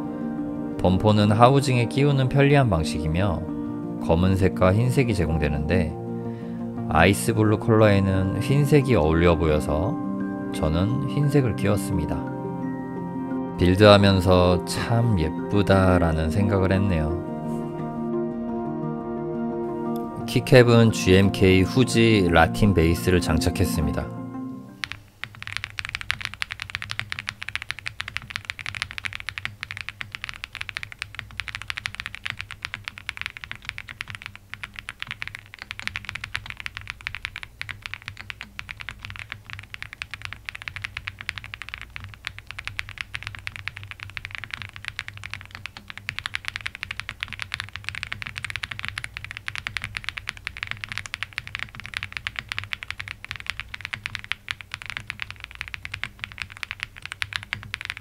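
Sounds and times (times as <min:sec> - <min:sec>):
fast mechanical keyboard typing: 0:24.8 - 0:58.0.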